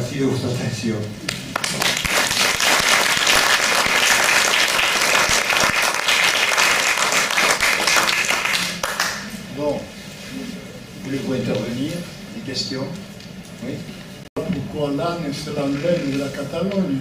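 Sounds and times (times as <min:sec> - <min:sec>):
audience applauding: 0:01.5 - 0:09.3.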